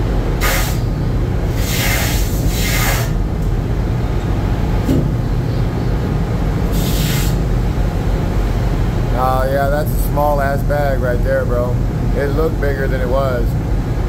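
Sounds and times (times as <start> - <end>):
deck machinery drone: 0.0 - 14.0
hissing bursts: 0.4 - 0.9, 1.5 - 3.2, 6.7 - 7.4.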